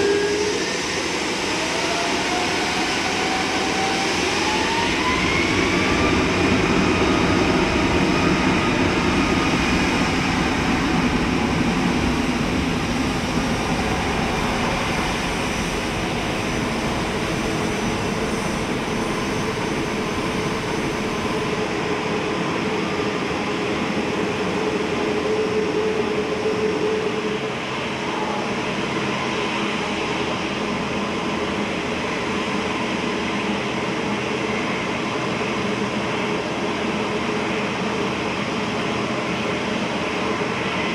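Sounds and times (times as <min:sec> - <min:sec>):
jet engine rushing noise: 0:00.0 - 0:27.0
jet engine turbine whine: 0:00.0 - 0:40.9.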